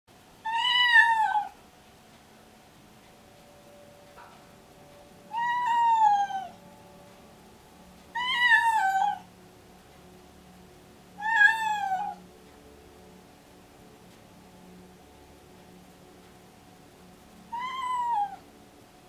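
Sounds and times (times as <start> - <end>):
cat meowing: 0.5 - 1.6, 5.3 - 6.6, 8.2 - 9.3, 11.2 - 12.2, 17.5 - 18.4.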